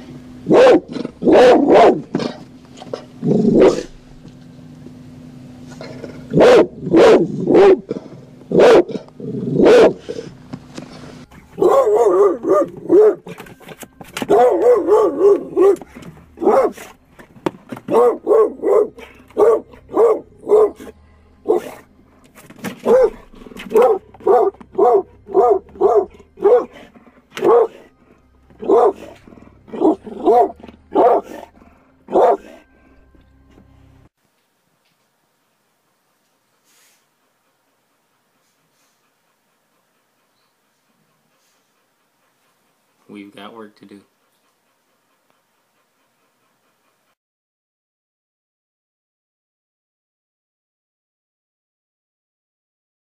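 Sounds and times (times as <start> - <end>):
dog barking frantically: 0.4 - 3.9, 5.8 - 10.3, 11.5 - 13.4, 14.2 - 17.0, 17.8 - 21.9, 22.6 - 32.7
dog wavering cries: 11.4 - 13.4, 14.3 - 16.8, 22.9 - 26.8, 27.4 - 27.9, 28.6 - 31.5, 32.1 - 33.0.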